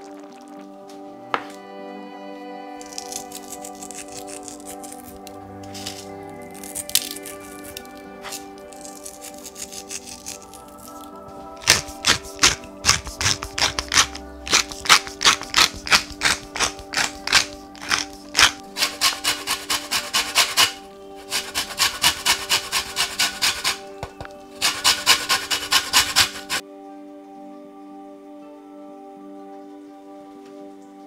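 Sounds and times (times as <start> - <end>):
soft background music: 0.0 - 31.0
lemon being zested: 2.8 - 23.9, 24.6 - 26.6
pepper mill grinding: 2.8 - 26.6.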